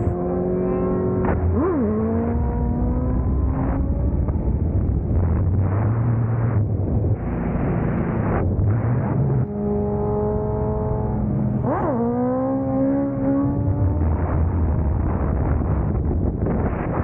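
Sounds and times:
motorcycle engine revving: 0.0s - 17.0s
wind noise on microphone: 13.1s - 17.0s.

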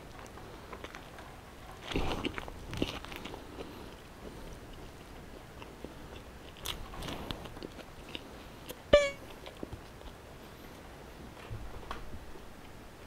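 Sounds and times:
person chewing crunchy food: 1.8s - 10.2s
short loud pitched note: 9.0s - 9.3s.

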